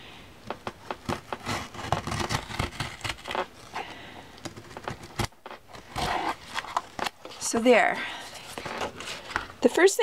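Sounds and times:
razor blade cutting book binding: 0.8s - 3.4s.

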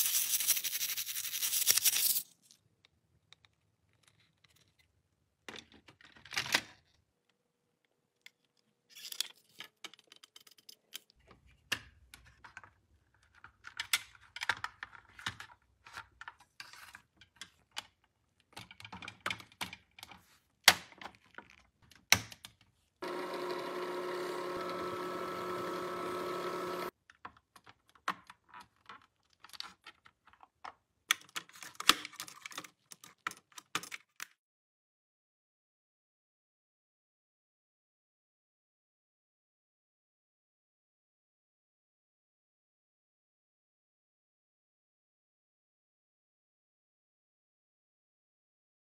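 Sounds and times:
plastic toy parts clicking: 8.3s - 11.2s, 27.0s - 34.4s
steady buzz: 23.0s - 26.9s.

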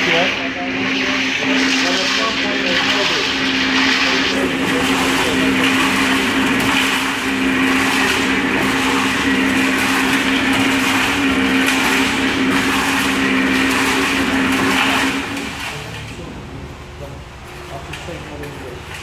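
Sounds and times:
concrete churning in drum: 0.0s - 19.0s
concrete mixer motor hum: 0.0s - 19.0s.

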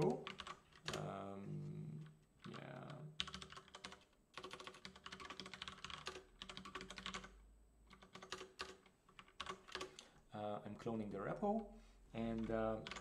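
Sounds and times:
fast keyboard typing: 0.0s - 1.2s, 2.4s - 10.0s, 12.2s - 13.0s.

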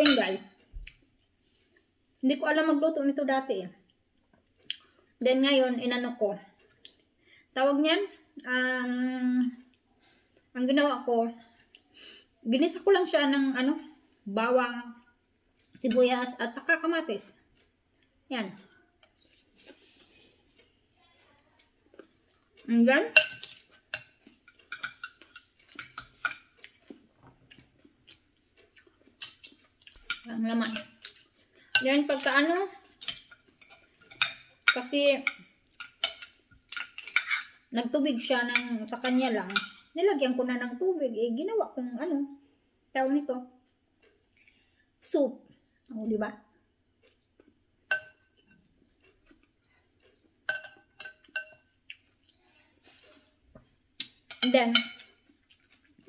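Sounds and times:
cutlery clinking on ceramic bowl: 0.0s - 0.4s, 23.1s - 26.6s, 30.1s - 37.7s, 38.5s - 39.9s, 47.9s - 48.6s, 50.4s - 51.7s, 54.3s - 55.2s.

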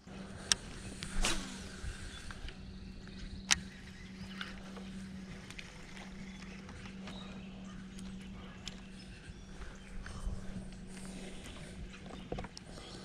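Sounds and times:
fishing reel spool whirring: 0.0s - 13.0s
steady low hum: 0.0s - 13.0s
sharp reel clicks: 0.4s - 7.1s.

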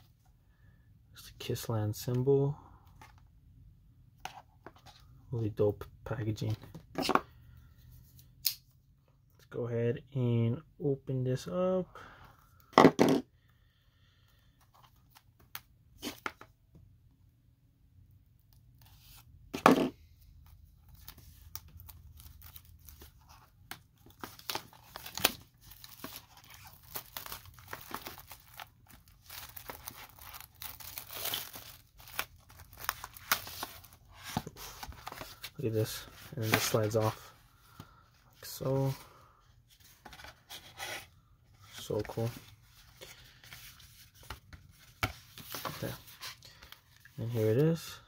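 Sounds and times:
plastic wrap crinkling: 24.1s - 34.0s
plastic wrap tearing: 24.4s - 33.7s.

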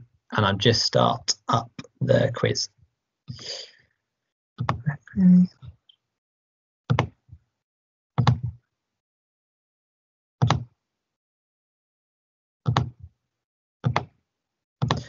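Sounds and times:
computer clicks and taps: 6.9s - 7.2s, 8.2s - 8.6s, 12.7s - 13.0s.

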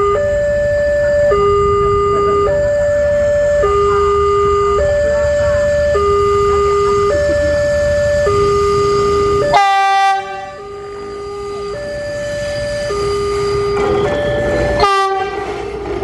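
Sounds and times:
level-crossing two-note alarm: 0.0s - 16.0s
railcar horn blasts: 8.2s - 16.0s.

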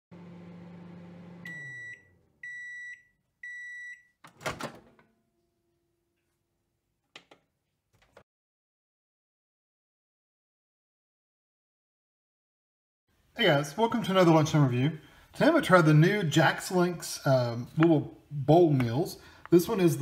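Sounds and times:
microwave oven humming: 0.1s - 3.6s
microwave beeps: 1.1s - 4.2s.

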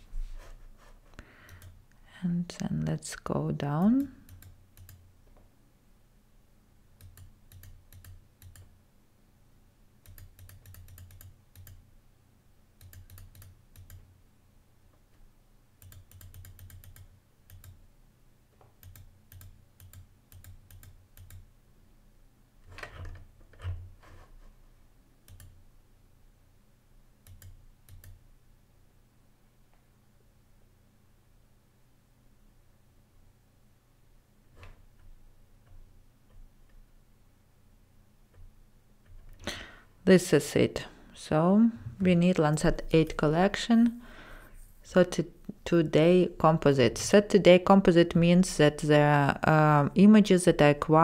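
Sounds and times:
computer mouse clicking: 1.4s - 1.8s, 4.0s - 5.4s, 7.0s - 8.7s, 10.0s - 11.8s, 12.8s - 14.1s, 15.8s - 17.8s, 18.6s - 21.5s, 25.2s - 25.6s, 27.2s - 28.2s.

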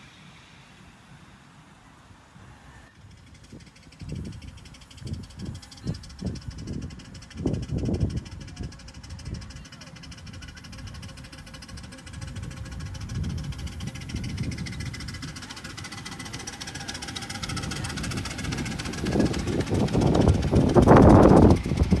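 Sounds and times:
miniature steam train rumbling: 0.0s - 22.0s.

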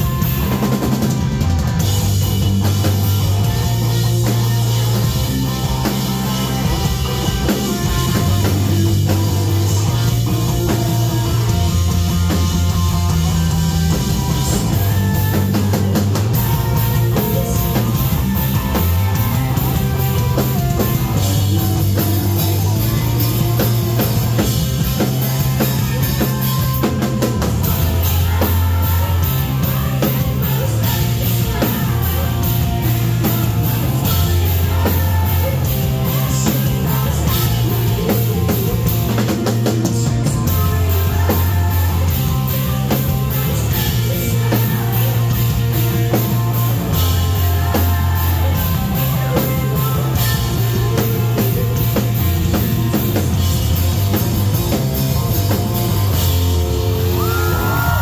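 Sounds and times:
bass line: 0.0s - 58.0s
drum kit with crashing cymbals: 0.0s - 58.0s
electric guitar: 0.0s - 58.0s
woman singing lead vocal: 14.4s - 24.2s, 24.9s - 53.1s, 57.0s - 58.0s.

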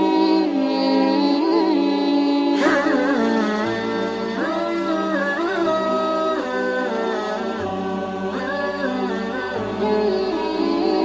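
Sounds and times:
person singing ornamented melody: 0.0s - 11.0s
held drone: 2.6s - 5.7s.

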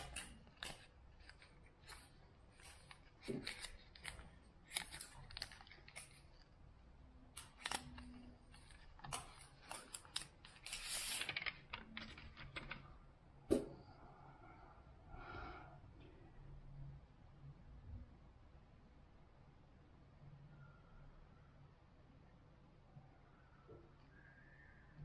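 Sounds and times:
paper sleeve rustling: 0.0s - 6.4s, 7.4s - 12.7s.

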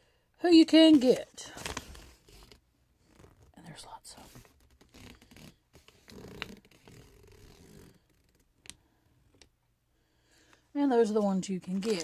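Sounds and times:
paper rustling and scraping: 1.5s - 3.4s, 11.1s - 12.0s.

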